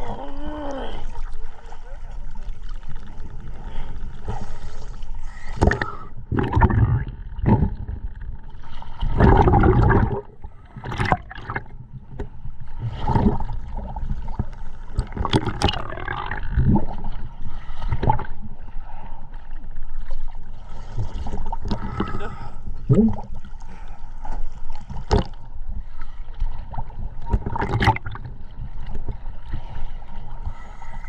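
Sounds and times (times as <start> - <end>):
diver breathing through regulator: 3.6 - 6.3
exhaled bubbles rushing: 5.6 - 11.9, 12.8 - 18.4, 21.2 - 23.5, 27.2 - 28.4.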